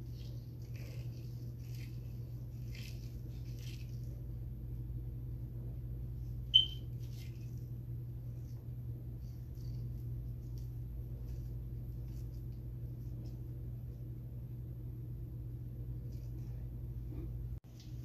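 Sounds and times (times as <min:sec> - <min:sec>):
hair mask squishing: 0:00.0 - 0:04.3
steady low hum: 0:00.0 - 0:18.0
sharp high squeak: 0:06.5 - 0:06.9.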